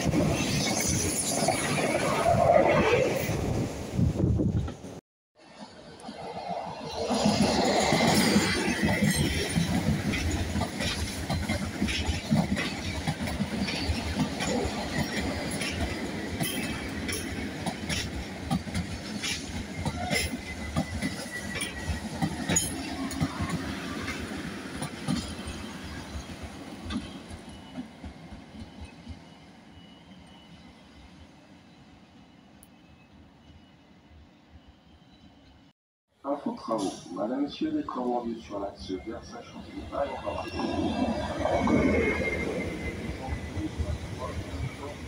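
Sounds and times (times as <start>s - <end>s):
passing train rumble: 0.0s - 32.6s, 36.2s - 45.0s
train wheels clicking over rail joints: 7.1s - 29.4s.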